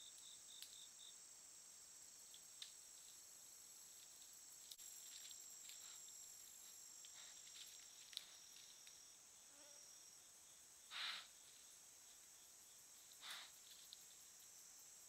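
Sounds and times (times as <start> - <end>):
insects trilling: 0.0 - 15.0
faint rustles and ticks: 2.2 - 9.1, 10.9 - 14.7.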